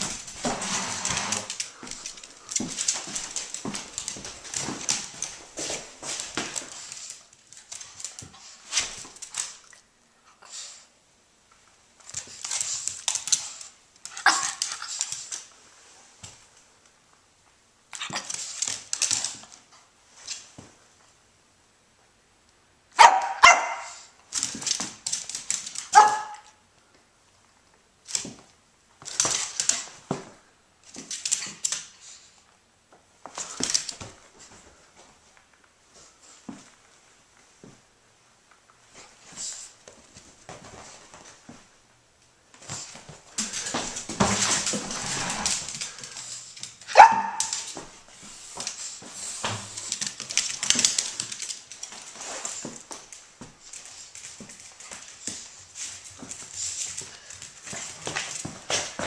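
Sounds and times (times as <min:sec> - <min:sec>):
dog claws scrabbling on wood floor: 0:00.0 - 0:09.8, 0:12.0 - 0:15.6, 0:18.0 - 0:20.7, 0:24.3 - 0:26.5, 0:28.0 - 0:32.2, 0:42.6 - 0:59.0
dog barking: 0:23.0 - 0:24.0, 0:25.9 - 0:26.6, 0:46.9 - 0:47.6.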